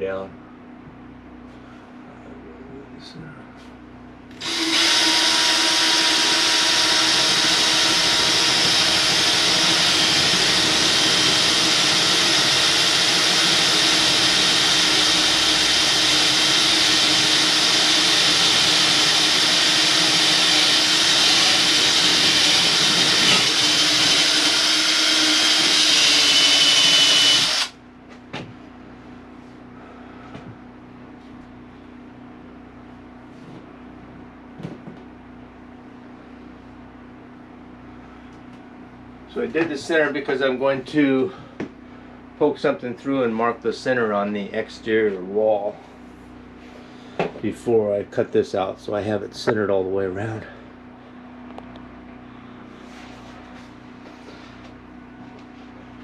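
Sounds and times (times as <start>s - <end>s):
cordless drill boring through wall: 4.3s - 27.8s.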